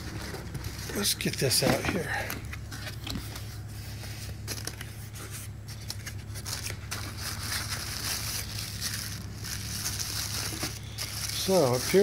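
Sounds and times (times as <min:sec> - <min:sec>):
cardboard and plastic rustling: 0:00.0 - 0:12.0
steady low hum: 0:00.0 - 0:12.0.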